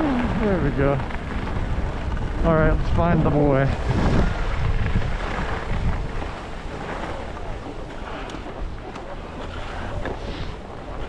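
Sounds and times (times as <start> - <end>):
wind buffeting microphone: 0.0 - 11.0
skis hissing over snow: 9.4 - 10.7.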